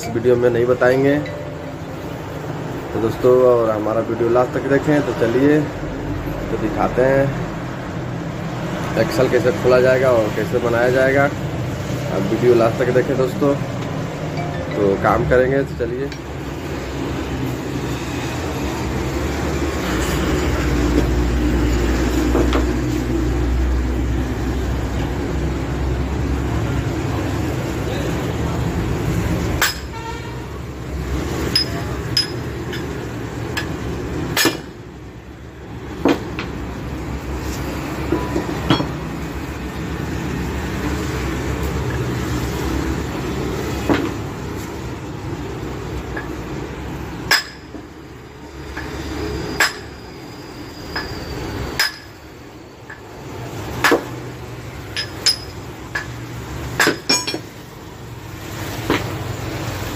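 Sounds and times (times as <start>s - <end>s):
hammer striking metal: 29.6s - 29.9s, 31.5s - 32.9s, 34.3s - 34.8s, 47.3s - 47.8s, 49.6s - 50.0s, 51.8s - 52.2s, 56.8s - 57.5s.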